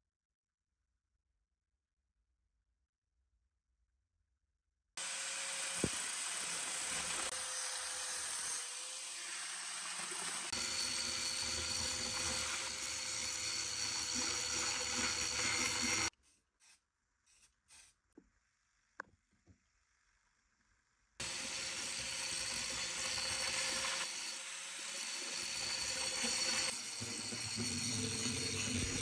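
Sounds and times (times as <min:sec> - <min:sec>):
angle grinder grinding metal: 0:05.0 - 0:17.9, 0:21.2 - 0:29.0.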